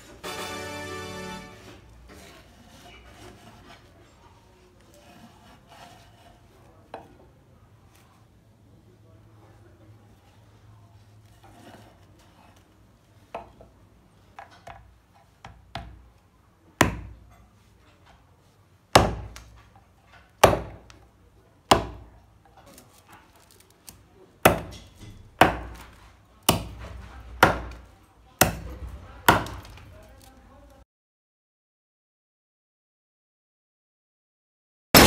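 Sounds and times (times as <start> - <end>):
blade chopping onto wooden beam: 16.8 - 17.4, 18.9 - 21.0, 21.7 - 22.7, 24.4 - 29.8.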